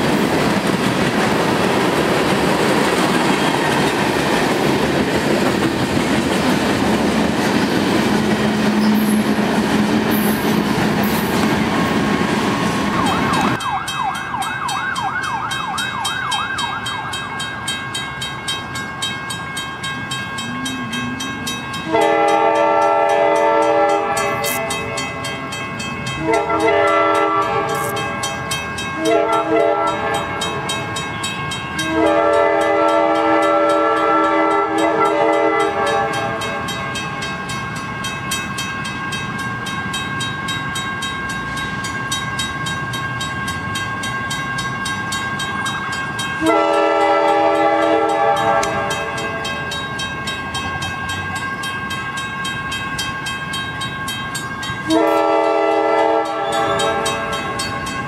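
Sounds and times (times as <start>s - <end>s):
steady high ringing tone: 15.5s - 23.0s
train air horn blasts: 20.5s - 25.0s, 26.2s - 28.1s, 29.0s - 30.6s, 31.8s - 36.5s, 46.4s - 49.4s, 54.9s - 57.3s.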